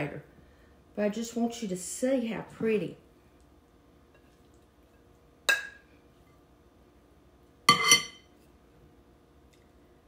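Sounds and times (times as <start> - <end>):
metal spoon clinking on dishes: 7.7 - 8.3.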